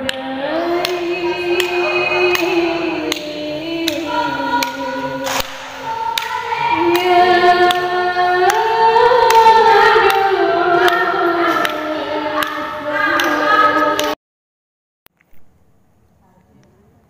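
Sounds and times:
woman singing slow melody: 0.0s - 14.2s.

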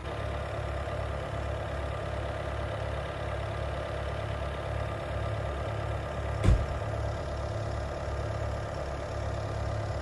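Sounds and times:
skid steer engine idling: 0.0s - 10.0s
thump: 6.4s - 6.8s.

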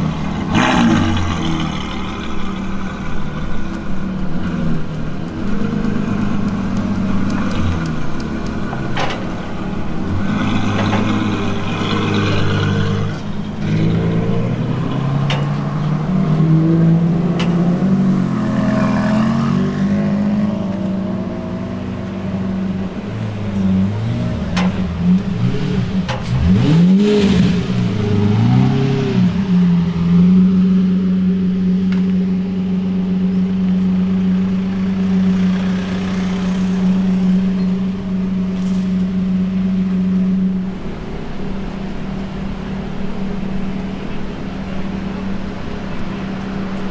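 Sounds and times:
engine idling: 0.0s - 14.1s, 31.5s - 46.9s
car engine pulling away: 0.0s - 46.9s
engine rev blips: 23.8s - 46.9s.

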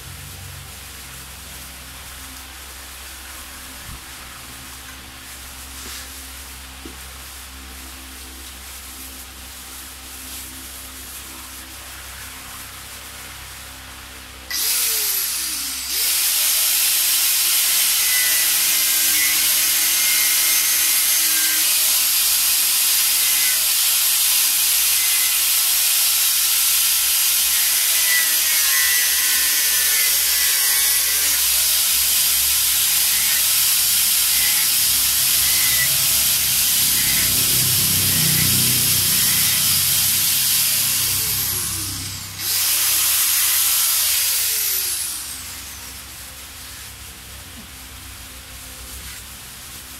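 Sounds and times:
power tool cutting fiberglass: 14.5s - 46.1s.

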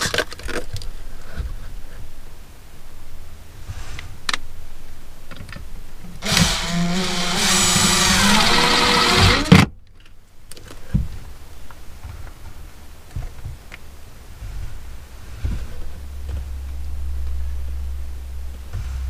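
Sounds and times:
cordless drill motor whine: 6.2s - 9.6s.

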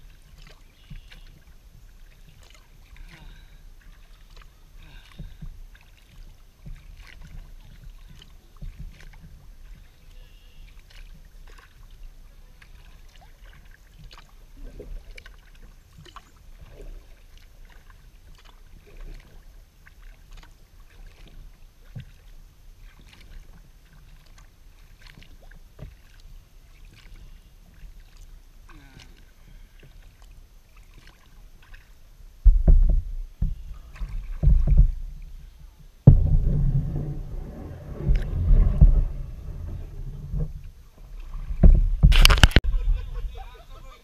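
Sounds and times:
paddle splashing in water: 0.0s - 44.0s
steady low rumble: 32.3s - 43.4s.

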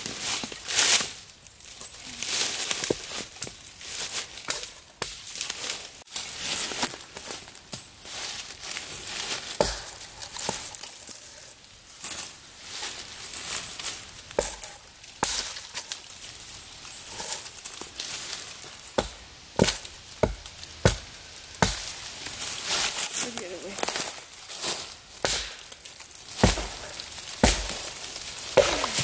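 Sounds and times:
branches rustling: 0.0s - 29.0s
axe chopping branches: 9.1s - 11.0s, 14.3s - 16.0s, 19.0s - 23.0s, 23.7s - 29.0s.

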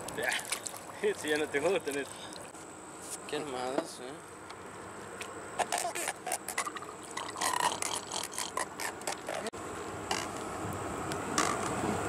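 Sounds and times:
catfish creaking clicks: 5.2s - 9.5s, 10.1s - 10.4s, 11.4s - 11.8s.

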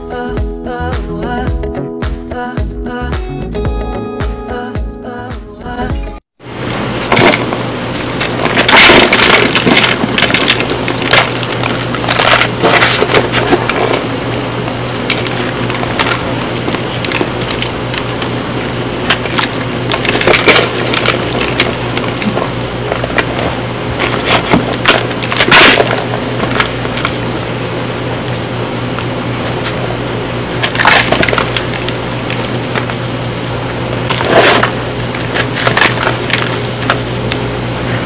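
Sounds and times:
squeaky crunching of crumbling blocks: 7.0s - 14.2s, 14.9s - 27.2s.

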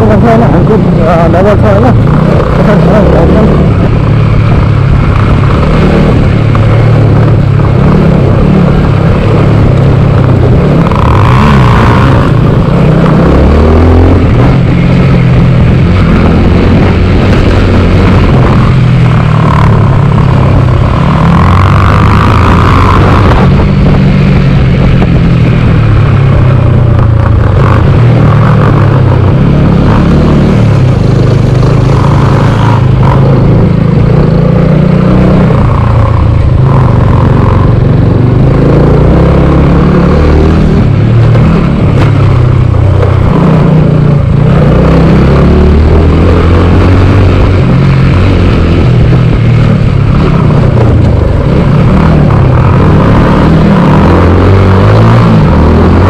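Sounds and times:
motorcycle engine running: 0.0s - 56.0s
road and wind noise: 0.0s - 56.0s.

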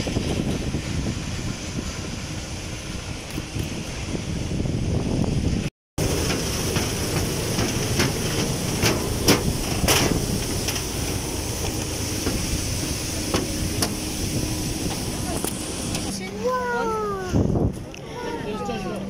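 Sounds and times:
footsteps knocking on metal stairs: 6.0s - 10.3s
airport apron hiss: 6.0s - 16.8s.

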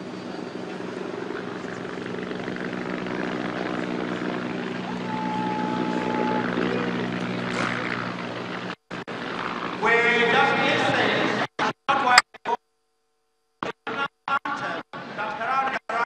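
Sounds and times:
low mechanical drone: 0.0s - 11.5s.

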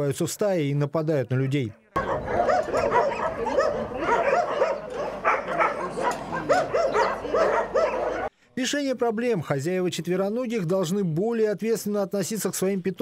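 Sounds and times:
dogs barking and yelping: 2.0s - 8.3s.

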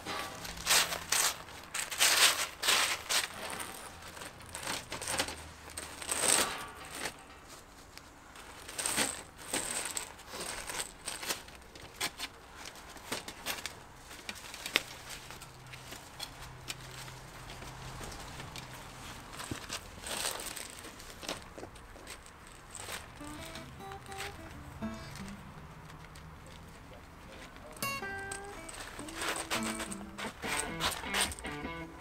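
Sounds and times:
plastic conduit dragged on gravel: 0.1s - 7.1s
gravel crunching under hands: 0.2s - 32.0s.

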